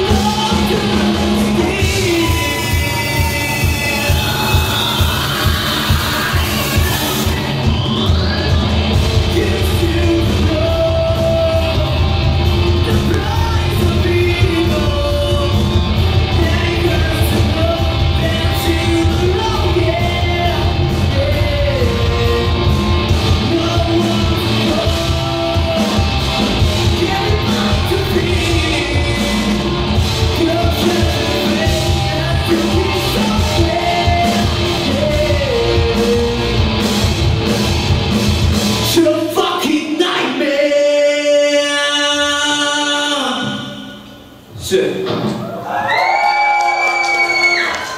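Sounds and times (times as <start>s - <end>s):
person singing: 0.0s - 7.6s, 8.2s - 12.2s, 12.8s - 36.6s
live rock band playing: 0.0s - 40.4s.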